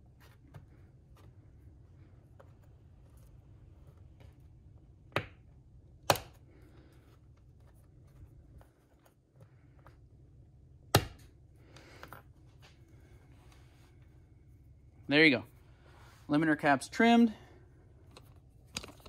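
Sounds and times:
plastic parts clicking: 18.1s - 19.0s.

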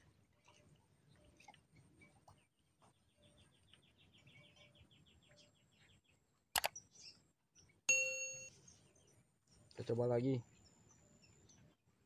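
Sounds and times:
bright bell ding: 7.9s - 8.5s.

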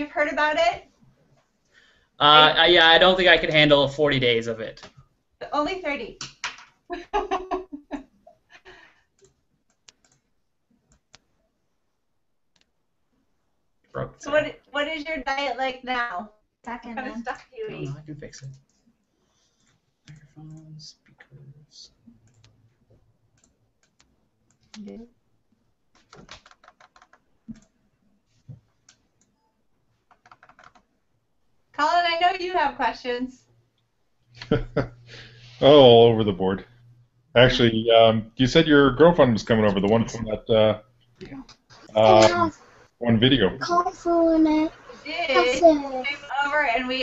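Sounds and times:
computer keyboard typing: 9.2s - 10.3s, 23.4s - 24.9s, 25.9s - 27.7s, 30.0s - 30.9s
computer keyboard clicks: 25.9s - 27.7s, 30.1s - 30.8s.

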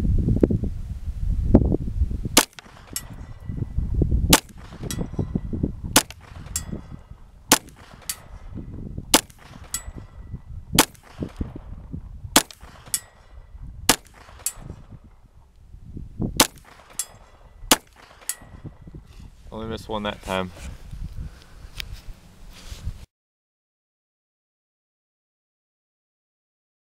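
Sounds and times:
low rumble: 0.0s - 17.8s
pistol shots: 2.4s - 3.5s, 4.3s - 15.1s, 16.4s - 18.8s
bullet ringing on steel target: 2.4s - 3.8s, 4.4s - 11.7s, 12.4s - 14.9s, 16.4s - 19.0s.

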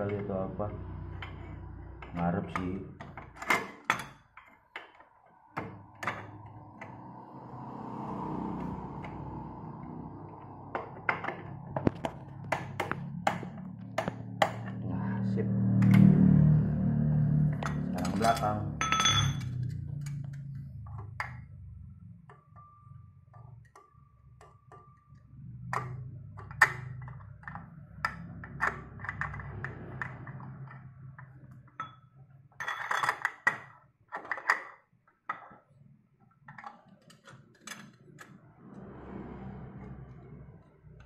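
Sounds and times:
metal tools clinking: 17.6s - 19.6s, 32.6s - 33.4s.

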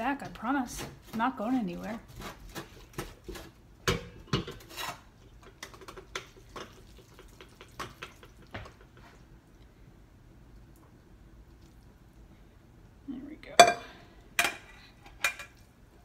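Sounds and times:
kitchenware clattering: 13.6s - 15.6s.

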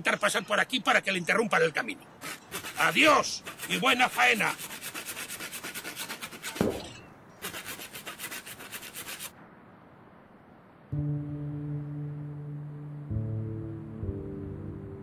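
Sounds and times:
hand saw cutting tree trunk: 2.2s - 9.3s
knock: 6.6s - 6.9s
soft sustained music: 10.9s - 15.0s.

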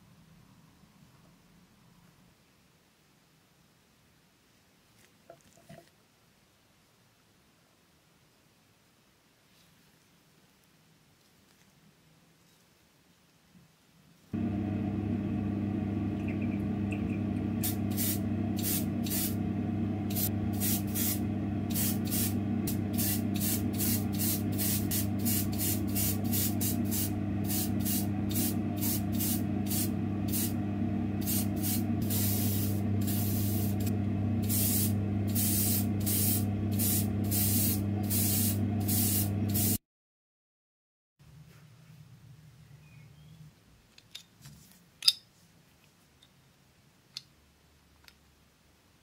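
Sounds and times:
steady low hum: 14.3s - 39.8s
airbrush spraying hiss: 17.6s - 19.4s, 20.1s - 30.6s, 31.2s - 39.8s.

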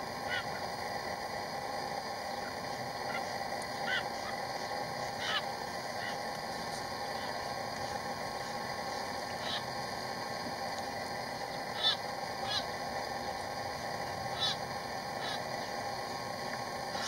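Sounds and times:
steady background noise: 0.0s - 17.0s
bird harsh alarm calls: 0.3s - 0.5s, 3.1s - 4.3s, 5.1s - 6.2s, 9.3s - 9.7s, 11.6s - 12.7s, 14.3s - 15.7s.

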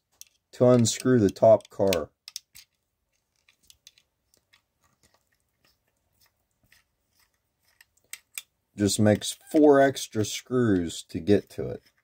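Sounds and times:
small screwdriver clicks and taps: 0.2s - 2.8s.

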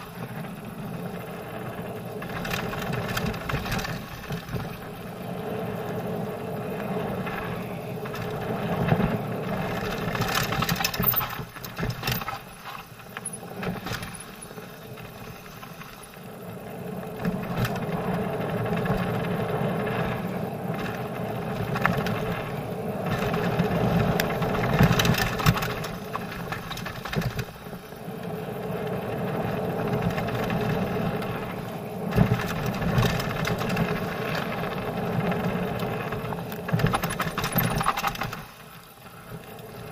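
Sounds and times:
bike tyres crunching on gravel: 0.0s - 39.9s
chain and frame rattle: 9.8s - 14.4s, 36.7s - 38.5s.

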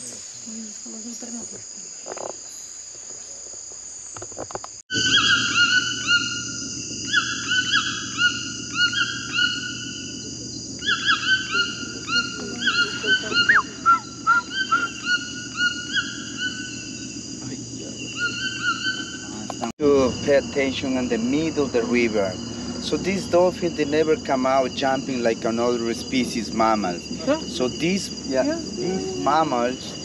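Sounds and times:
insects droning: 0.0s - 30.0s
animal calls chorus: 4.9s - 19.7s, 24.8s - 30.0s
low hum: 4.9s - 30.0s.

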